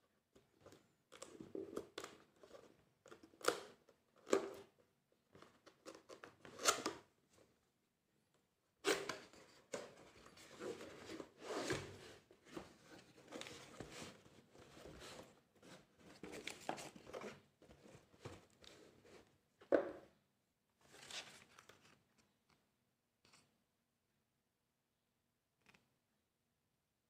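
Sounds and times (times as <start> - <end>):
cardboard and paper rustling: 9.2 - 19.4, 20.8 - 22.2.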